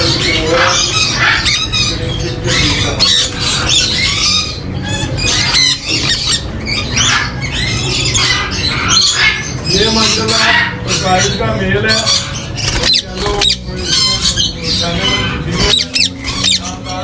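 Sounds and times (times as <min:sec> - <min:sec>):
parrots squawking and chattering: 0:00.0 - 0:17.0.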